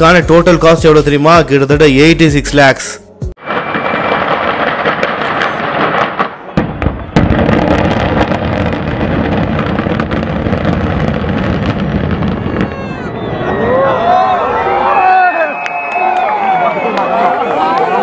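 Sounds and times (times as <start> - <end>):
explosive charge blasts: 3.4 - 13.5
building collapsing rumble: 3.4 - 14.8.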